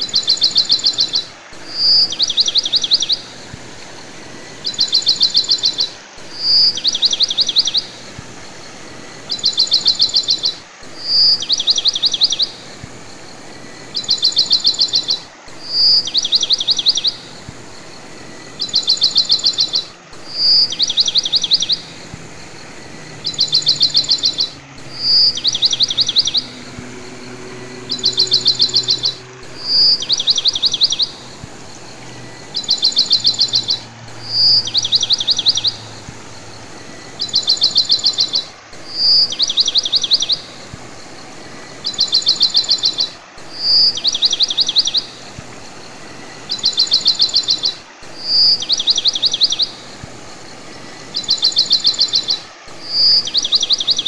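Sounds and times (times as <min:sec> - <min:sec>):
bird chirping trill: 0:00.0 - 0:54.0
soft steady hiss: 0:00.0 - 0:54.0
bird whistled note: 0:04.4 - 0:45.4.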